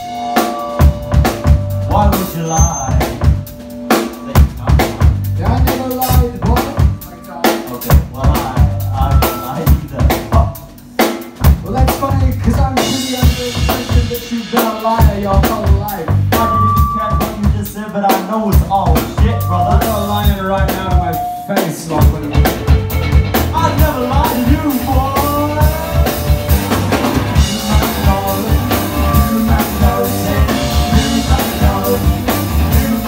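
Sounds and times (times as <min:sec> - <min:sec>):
rock band playing live: 0:00.0 - 0:33.0
electric guitars: 0:18.9 - 0:33.0.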